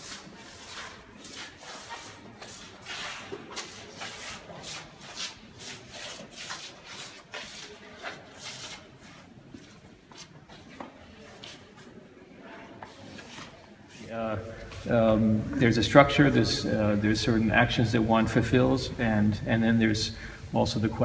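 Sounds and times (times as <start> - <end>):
shoes scuffing on wooden floor: 6.1 - 12.0.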